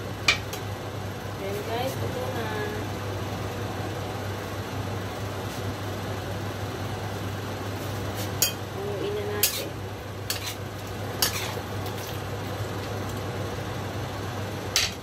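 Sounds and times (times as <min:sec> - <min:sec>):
frying hiss: 0:07.7 - 0:14.1.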